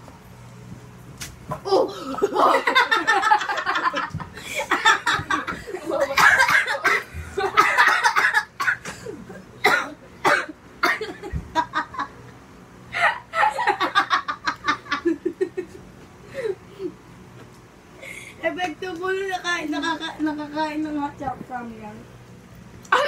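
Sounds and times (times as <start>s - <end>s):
young people laughing: 1.7s - 9.2s, 11.0s - 12.2s, 13.0s - 15.8s.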